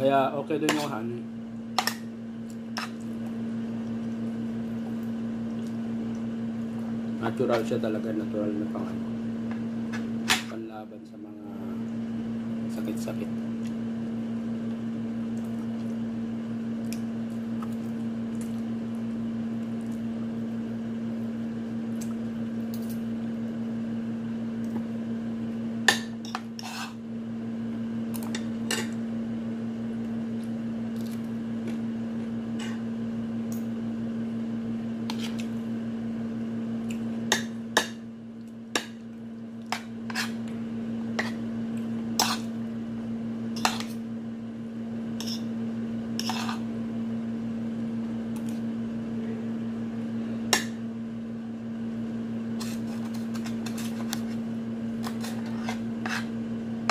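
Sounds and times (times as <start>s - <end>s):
fork scraping on plate: 26.2s - 27.0s, 35.1s - 35.5s, 39.7s - 40.4s, 41.2s - 41.4s, 42.2s - 42.5s, 43.6s - 44.0s, 45.2s - 45.5s, 46.2s - 46.7s, 52.6s - 54.4s, 55.0s - 56.3s.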